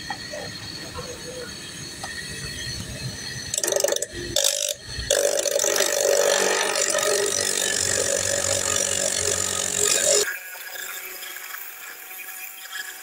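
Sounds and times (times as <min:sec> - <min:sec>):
cut-off wheel grinding hose: 0:03.5 - 0:13.0.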